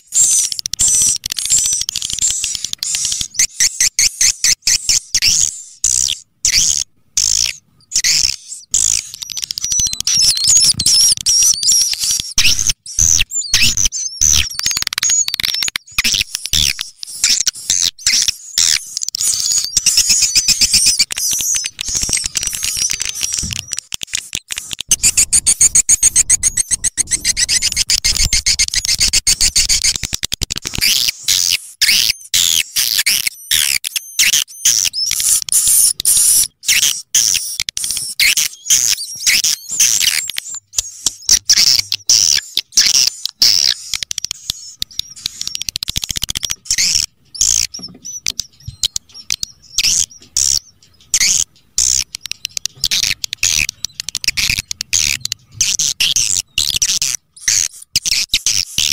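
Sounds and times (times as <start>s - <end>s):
fast buzzy bird trill: 0.0s - 58.9s
swiftlets twittering: 7.2s - 31.0s.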